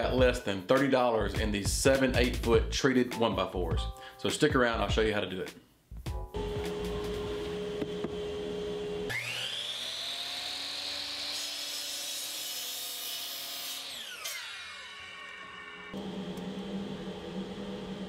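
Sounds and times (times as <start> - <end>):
miter saw motor whine: 6.4 - 11.4, 13.9 - 18.0
saw blade cutting wood: 9.1 - 16.0.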